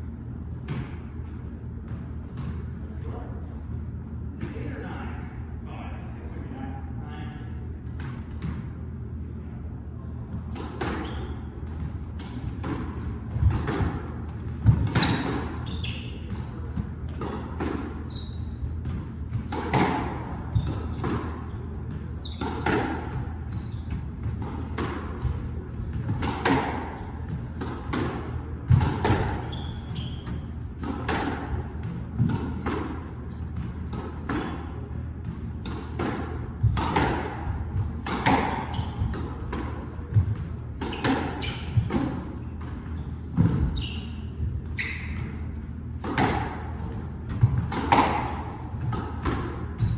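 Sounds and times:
squash ball knocks: 25.8 - 29.4.

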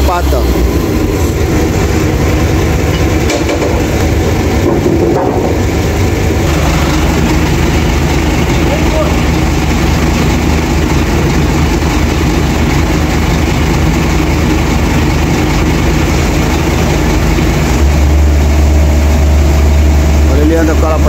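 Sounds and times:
heavy truck engine idling: 0.0 - 21.0.

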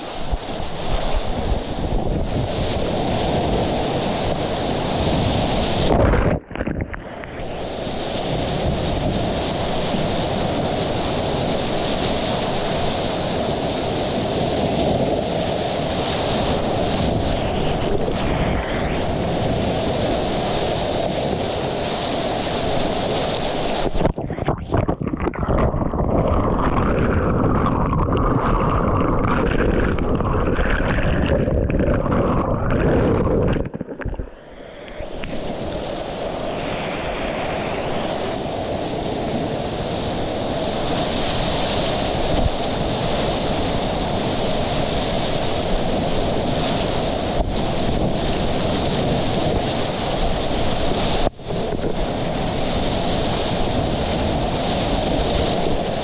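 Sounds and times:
whitewater rushing and splashing: 0.0 - 38.4
wind buffeting microphone: 0.0 - 56.0.

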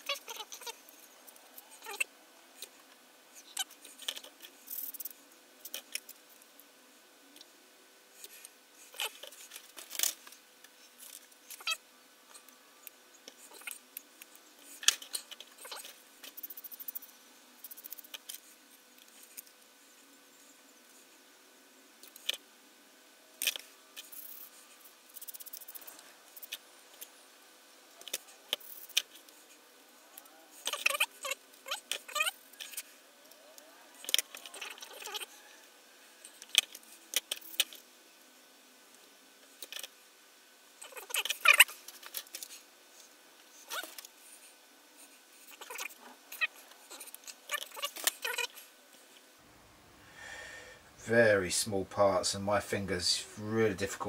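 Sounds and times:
plastic model parts clicking: 34.0 - 35.3, 36.4 - 37.8, 39.6 - 39.9.

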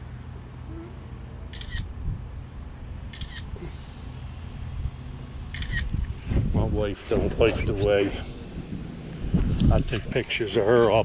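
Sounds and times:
camera shutter clicking: 1.5 - 1.9, 3.1 - 3.5, 5.5 - 6.1.

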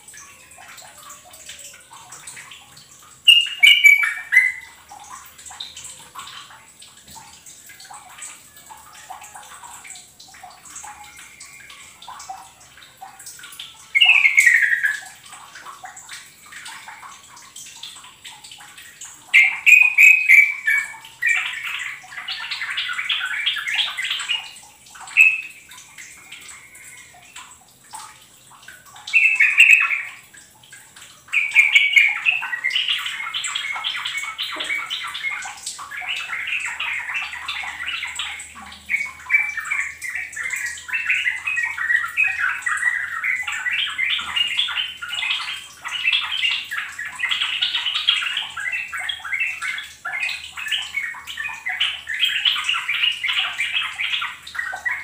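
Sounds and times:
bird singing chattering phrases: 3.3 - 4.8, 13.9 - 15.1, 19.3 - 25.6, 31.4 - 55.0.

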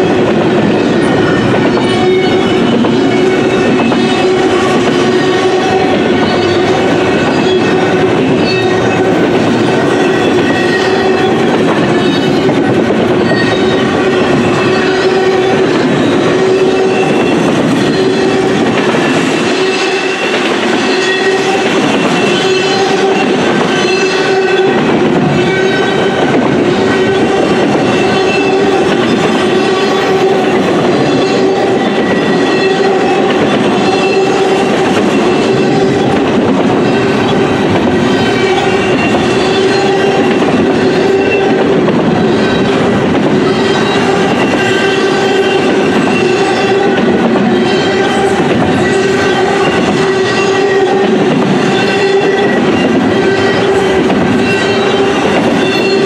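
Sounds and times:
steel wheels rumbling on rail: 0.0 - 56.0.

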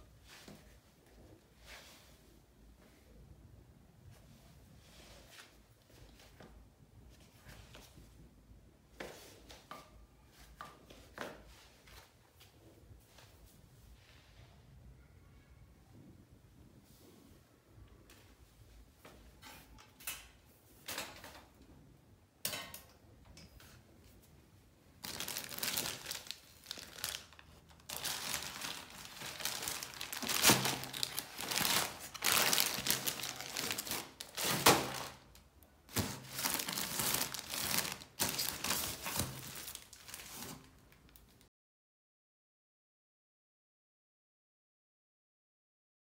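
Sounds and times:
plastic packaging crinkling: 25.0 - 41.4.

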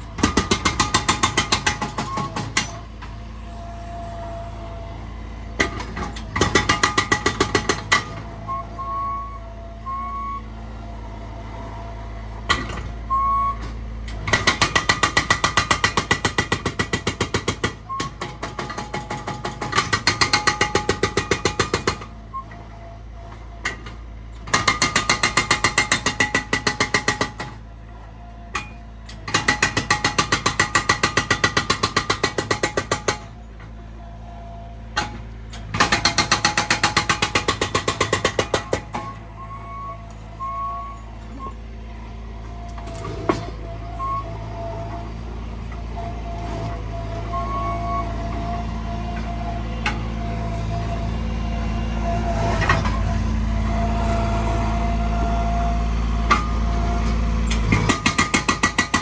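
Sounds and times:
hydraulic breaker hammering concrete: 0.0 - 2.8, 5.6 - 8.2, 14.2 - 22.1, 24.5 - 27.6, 28.5 - 33.4, 35.0 - 39.2, 57.6 - 59.0
engine running steadily: 0.0 - 59.0.

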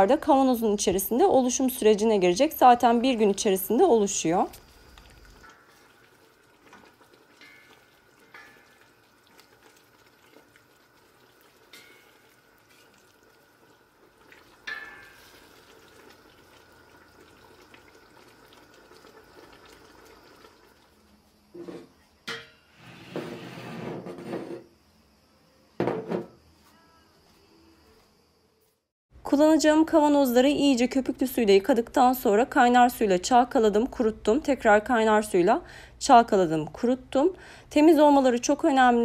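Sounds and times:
wooden spoon stirring in metal pot: 2.3 - 20.7
glass jars knocking on wooden table: 25.8 - 26.4.

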